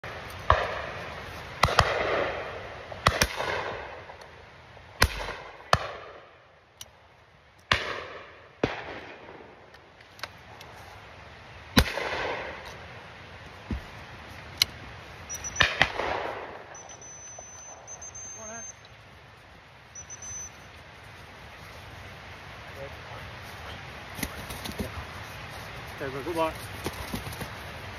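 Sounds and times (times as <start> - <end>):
shotgun fire with echo: 0.5 - 1.0, 1.6 - 4.0, 5.0 - 6.2, 7.7 - 9.5, 11.8 - 12.6, 15.6 - 16.7.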